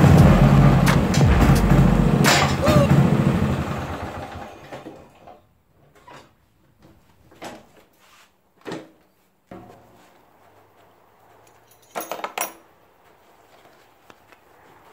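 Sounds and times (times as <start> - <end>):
lawn mower engine running: 0.0 - 5.2.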